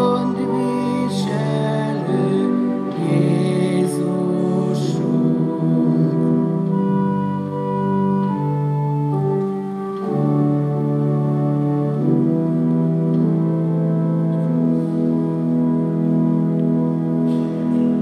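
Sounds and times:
organ chords: 0:00.0 - 0:18.0.

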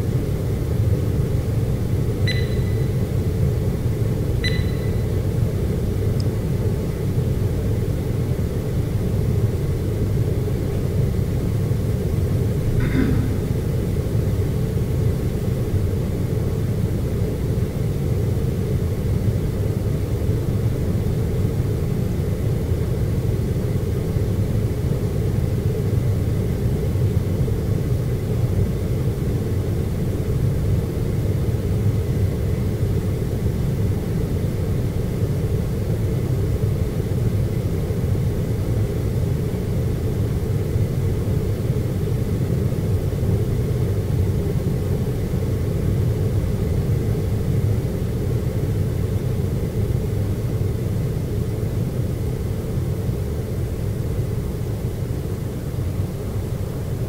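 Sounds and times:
low room tone rumble: 0:00.0 - 0:57.0
faint high tone: 0:02.3 - 0:03.0.

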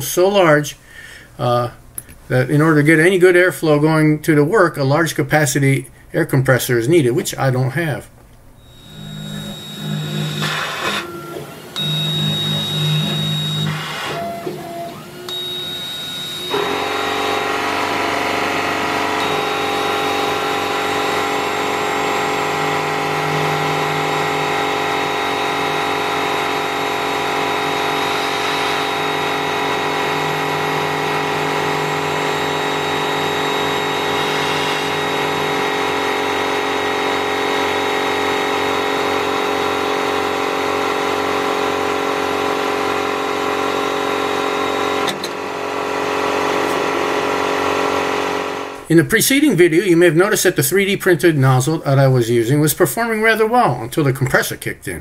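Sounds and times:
laser cutter whining and humming: 0:08.6 - 0:48.8
air compressor running: 0:08.6 - 0:48.9.

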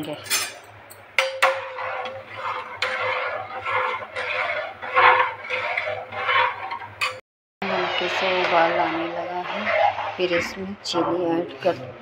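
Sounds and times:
spoon scraping pot: 0:00.3 - 0:11.1
metal spoon knocking on pot: 0:01.2 - 0:01.8.

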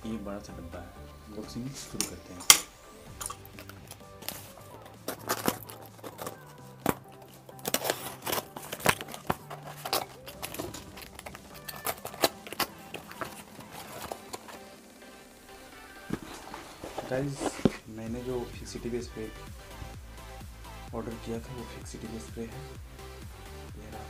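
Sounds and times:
packing tape slit and torn: 0:01.9 - 0:17.8
crumpled paper rustling: 0:03.2 - 0:18.0
cardboard flaps pulled open: 0:16.0 - 0:17.8.

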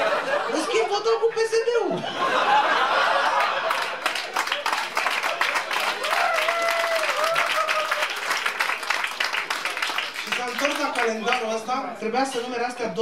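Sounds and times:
audience laughing: 0:00.0 - 0:06.0
audience applause: 0:02.8 - 0:11.4.

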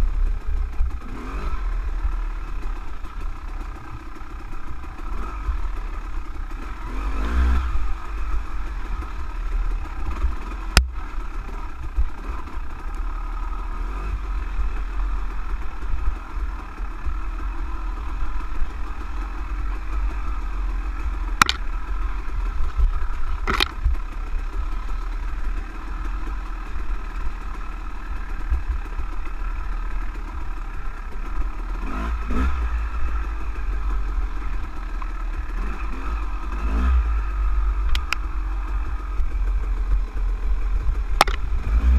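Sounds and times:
dirt bike engine running: 0:00.0 - 0:41.9
sharp knocks: 0:21.4 - 0:21.6.

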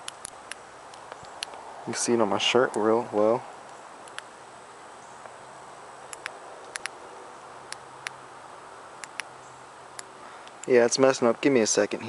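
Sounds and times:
sharp high-pitched clicks: 0:00.0 - 0:01.6, 0:02.7 - 0:04.3, 0:06.1 - 0:07.0, 0:07.7 - 0:08.2, 0:09.0 - 0:09.3, 0:09.9 - 0:10.8
steady hiss: 0:00.0 - 0:12.0.

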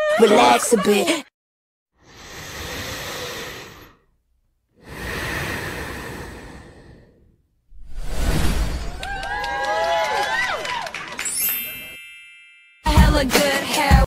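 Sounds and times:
girl breathing in deeply: 0:02.0 - 0:04.1, 0:04.8 - 0:07.4.

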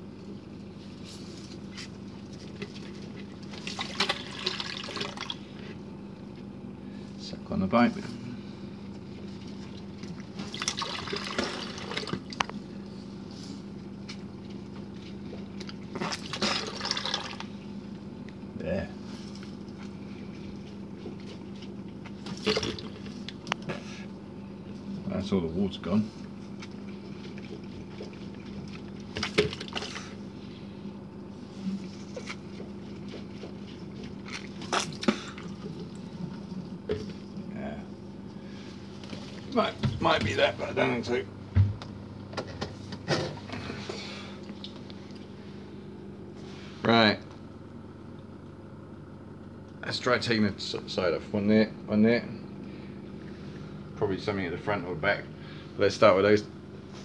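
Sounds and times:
steady low hum: 0:00.0 - 0:57.0
water slurping and gurgling: 0:02.6 - 0:05.6, 0:09.3 - 0:12.4, 0:15.4 - 0:17.6, 0:22.1 - 0:23.4, 0:26.8 - 0:30.3, 0:31.8 - 0:37.4
person spitting: 0:34.7 - 0:35.6.

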